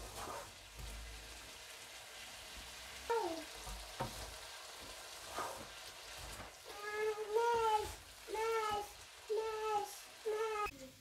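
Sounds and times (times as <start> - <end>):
vegetables sizzling in a wok: 0.0 - 11.0
wooden spatula knocking pan: 3.6 - 4.4.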